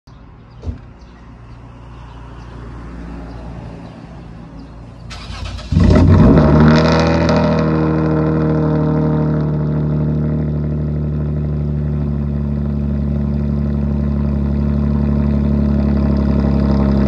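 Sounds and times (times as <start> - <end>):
thump: 0.6 - 0.9
car engine idling: 4.6 - 17.0.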